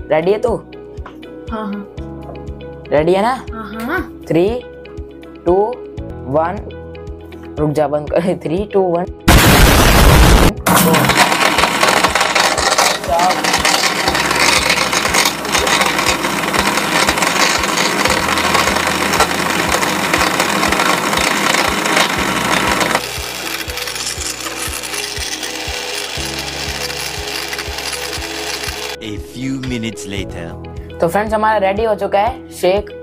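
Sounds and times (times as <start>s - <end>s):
mixer grinder whirring: 10.6s - 29.0s.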